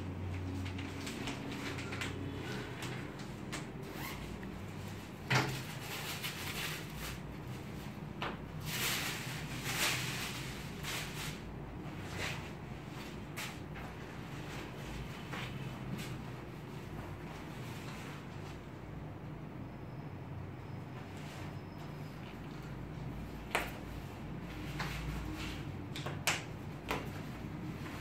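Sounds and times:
tissue paper and leather rustling: 0:03.8 - 0:13.6.

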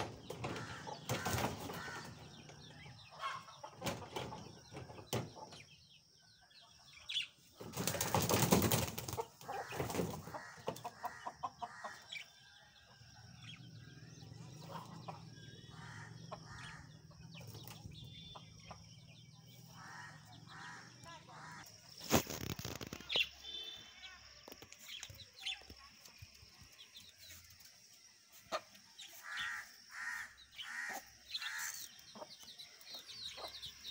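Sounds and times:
chickens clucking and cheeping: 0:00.0 - 0:33.9
chickens flapping wings: 0:00.2 - 0:02.1, 0:07.6 - 0:10.4, 0:21.9 - 0:23.2.

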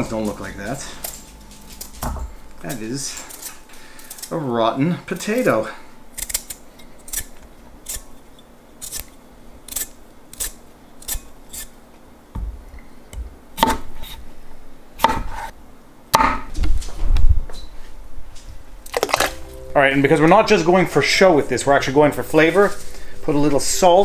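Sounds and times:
peeler scraping potato: 0:08.8 - 0:11.7.

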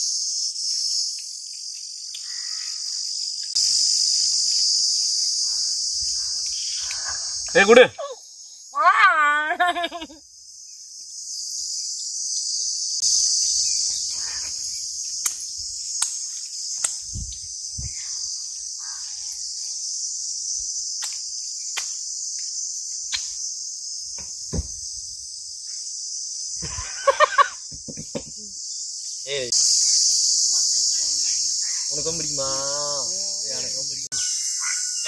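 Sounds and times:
insects shrilling: 0:00.0 - 0:35.0
person speaking: 0:07.5 - 0:08.2.

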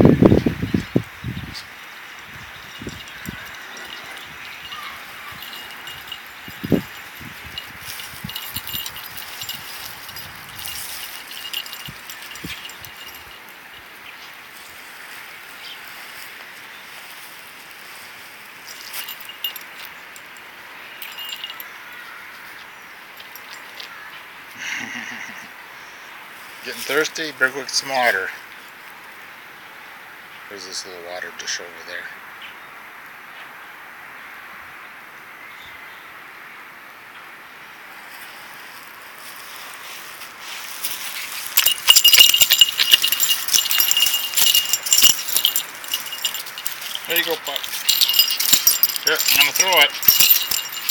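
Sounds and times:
outdoor background noise: 0:00.0 - 0:50.9
metallic jingling and clinking: 0:00.4 - 0:14.8, 0:17.9 - 0:22.4, 0:23.2 - 0:23.9, 0:40.4 - 0:50.9.

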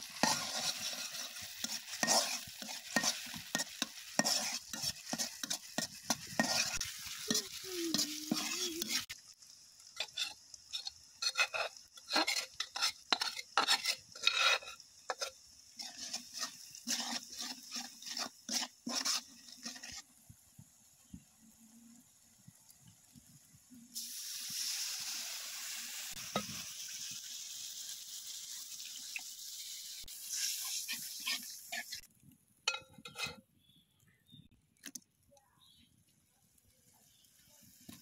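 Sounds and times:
metal spatula scraping a wok: 0:00.0 - 0:09.2, 0:10.0 - 0:20.1, 0:30.0 - 0:32.1, 0:32.7 - 0:33.4
food sizzling in hot oil: 0:00.0 - 0:35.0, 0:35.6 - 0:38.0.

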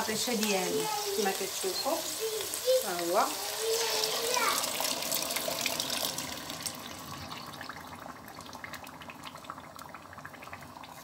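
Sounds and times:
hot pan crackling: 0:00.0 - 0:11.0
thick liquid pouring into pot: 0:03.6 - 0:11.0.

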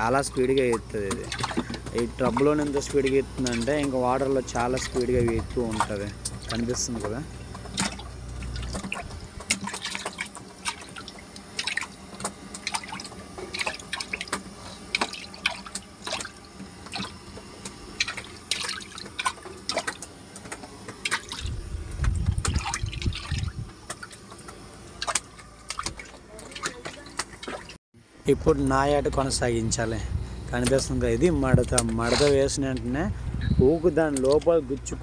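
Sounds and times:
water splashing in a tank: 0:00.0 - 0:27.8.

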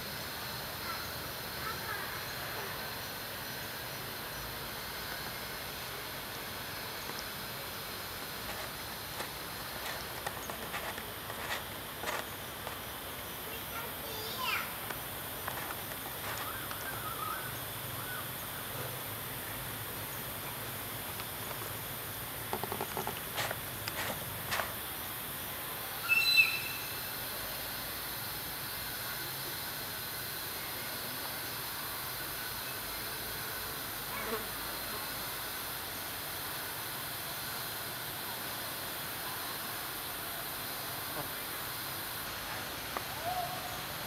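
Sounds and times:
steady outdoor hiss: 0:00.0 - 0:44.0
high wavering animal calls: 0:26.0 - 0:26.9, 0:43.1 - 0:44.0.

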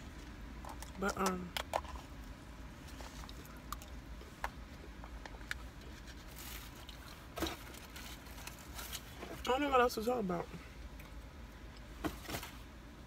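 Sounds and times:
food packaging rustles: 0:05.8 - 0:09.5.

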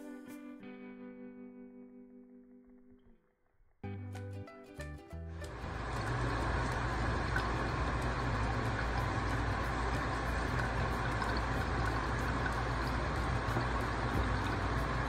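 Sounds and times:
low steady hum: 0:05.4 - 0:15.0
water splashing into steel sink: 0:05.5 - 0:15.0.

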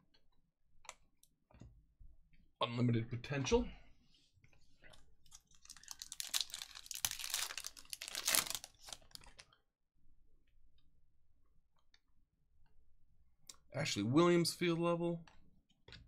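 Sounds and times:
wrapper tearing and crinkling: 0:05.4 - 0:09.4.

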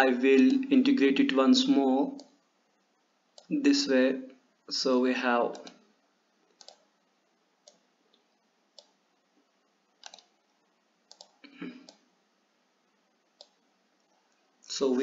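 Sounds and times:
computer mouse clicks: 0:02.2 - 0:02.4, 0:05.5 - 0:05.8, 0:06.5 - 0:06.9, 0:07.6 - 0:09.0, 0:10.0 - 0:10.4, 0:11.1 - 0:12.1, 0:13.4 - 0:14.4.

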